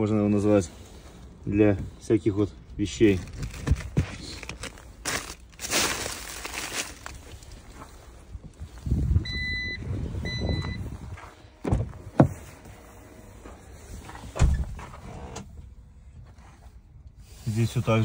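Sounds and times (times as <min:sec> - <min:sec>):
low rumble: 0:06.1 - 0:16.2
short electronic beeps: 0:09.2 - 0:11.0
car door thumps: 0:11.6 - 0:12.4.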